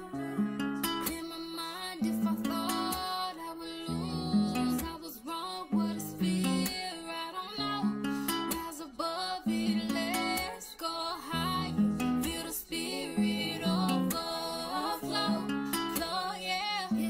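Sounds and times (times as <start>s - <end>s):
guitar-led background music: 0.0s - 17.0s.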